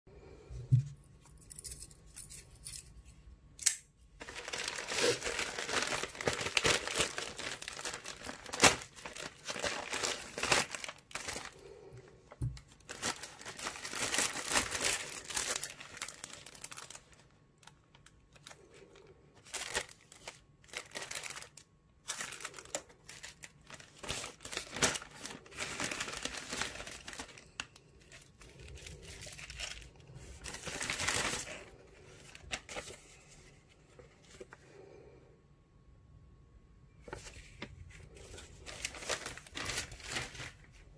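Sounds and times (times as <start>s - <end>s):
plastic mailer tearing: 4.2s - 11.8s, 12.6s - 17.3s, 19.4s - 31.6s, 38.6s - 40.6s
plastic and paper crinkling: 4.2s - 34.6s, 37.0s - 40.9s.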